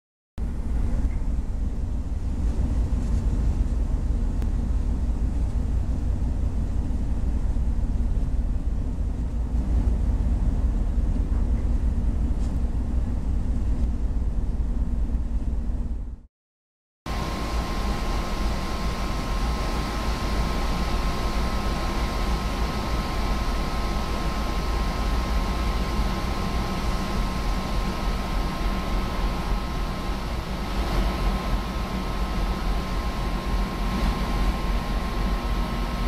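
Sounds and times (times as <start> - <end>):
ship engine rumble: 0.4 - 16.3, 17.1 - 36.0
machinery rushing noise: 17.1 - 36.0
two-tone high whine: 17.1 - 36.0.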